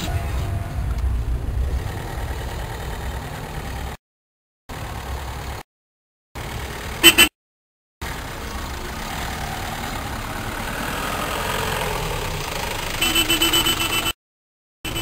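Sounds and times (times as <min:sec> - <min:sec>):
engine running: 0:00.0 - 0:04.0, 0:04.7 - 0:05.6, 0:06.4 - 0:07.2, 0:08.0 - 0:14.0.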